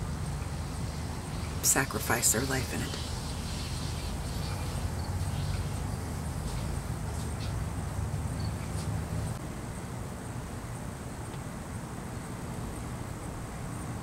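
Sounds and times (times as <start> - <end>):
faint crickets chirping: 0.0 - 14.0
low steady rumble: 0.0 - 14.0.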